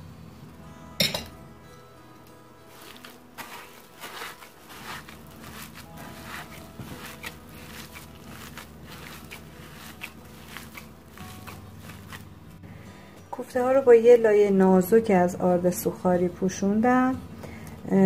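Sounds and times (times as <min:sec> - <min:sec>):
hand kneading soft food mash: 0:02.6 - 0:15.6.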